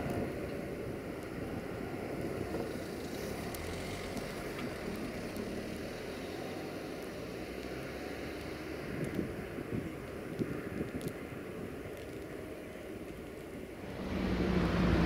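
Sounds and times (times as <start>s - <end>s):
distant locomotive engine rumble: 12.2s - 15.0s.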